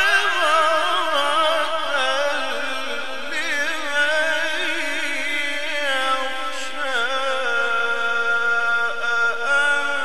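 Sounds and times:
man chanting melodic recitation: 0.0 - 10.0.

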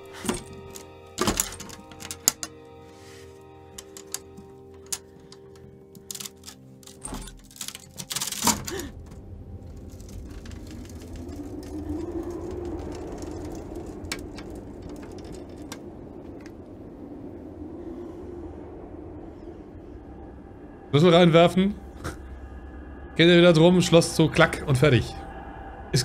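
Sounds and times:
steady low hum: 8.7 - 26.0.

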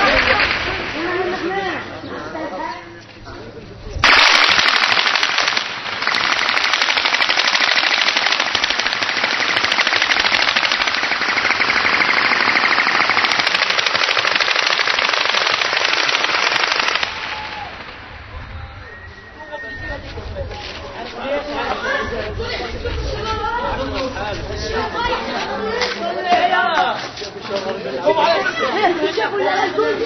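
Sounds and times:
automatic gunfire: 0.0 - 1.5, 4.0 - 18.1.

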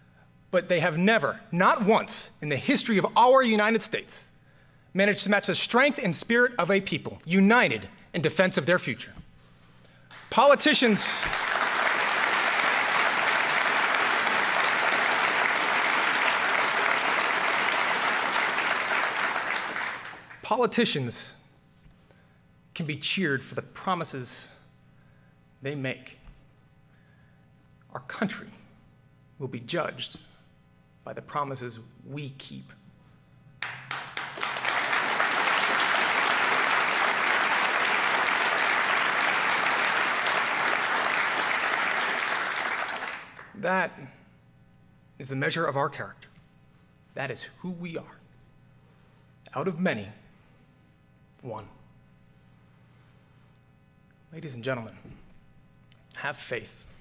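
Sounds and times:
audience applauding: 10.9 - 20.4, 33.6 - 43.6.

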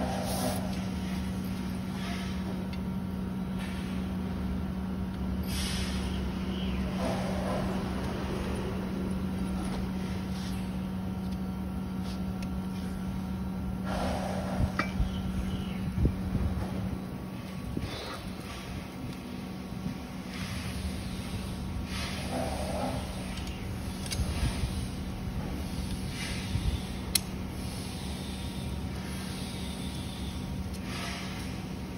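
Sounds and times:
low background hum: 0.0 - 31.9.

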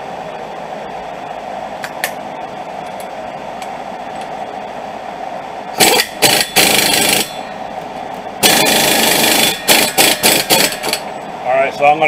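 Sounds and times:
impact wrench bursts: 5.8 - 7.4, 8.4 - 11.0.

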